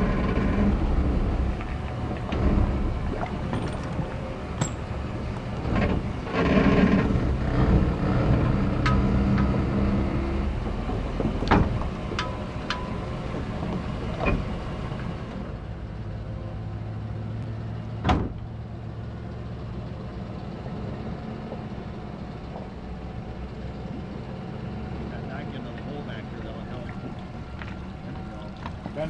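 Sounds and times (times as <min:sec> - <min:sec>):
truck engine running: 0:00.0 - 0:29.0.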